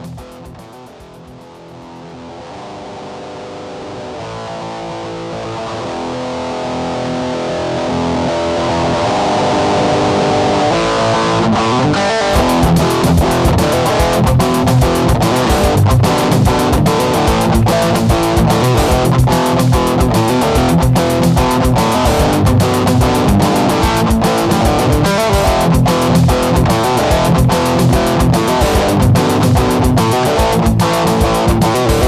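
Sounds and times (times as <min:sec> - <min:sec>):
drum-machine beat: 0:00.0 - 0:01.9, 0:12.3 - 0:32.0
electric guitar chords: 0:00.0 - 0:32.0.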